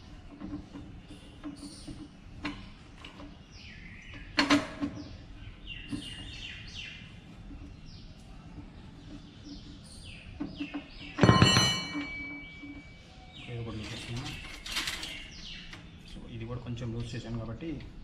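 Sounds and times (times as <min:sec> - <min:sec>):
birds chirping: 0:00.0 - 0:18.0
loud metal clank: 0:11.2 - 0:12.8.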